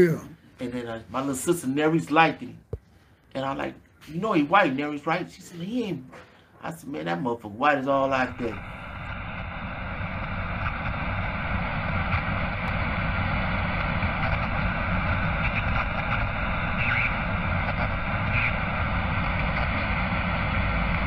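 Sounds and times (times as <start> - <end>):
steady rushing noise: 8.2 - 21.0.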